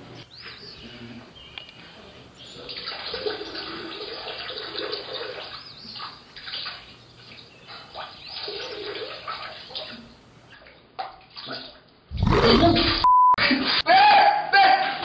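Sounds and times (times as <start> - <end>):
water running and gurgling: 2.3 - 10.6.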